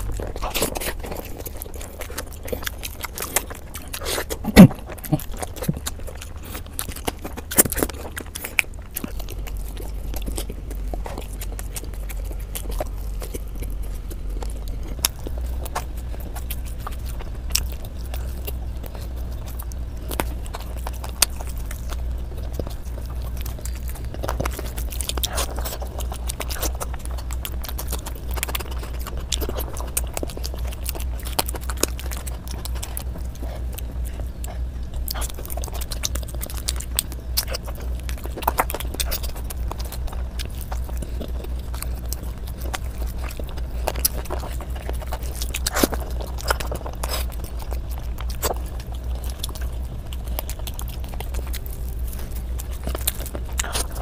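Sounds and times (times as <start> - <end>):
close chewing and biting: 0.0 - 54.0
low hum: 0.0 - 54.0
wet mouth sounds: 0.0 - 54.0.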